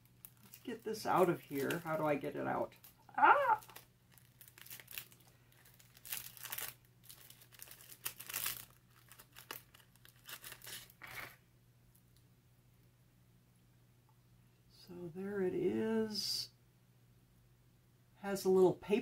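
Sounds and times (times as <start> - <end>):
packaging crinkling and rustling: 0.0 - 11.4.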